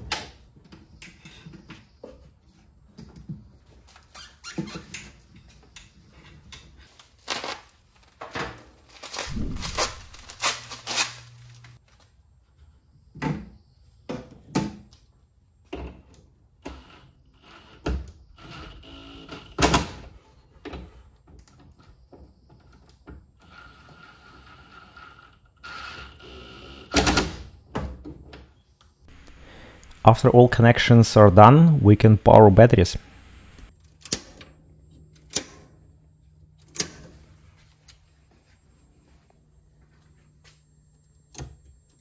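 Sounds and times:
plastic bag rustling: 0:08.8 - 0:11.8.

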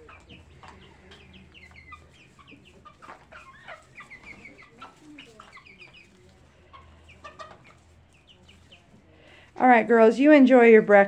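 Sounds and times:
chicks peeping: 0:00.0 - 0:10.9.

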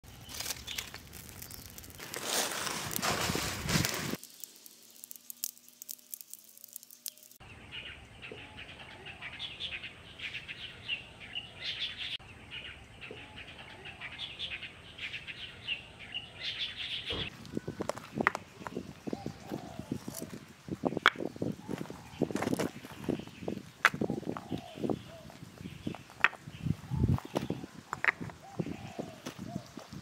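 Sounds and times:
small birds chirping: 0:00.0 - 0:03.0, 0:04.2 - 0:30.0.

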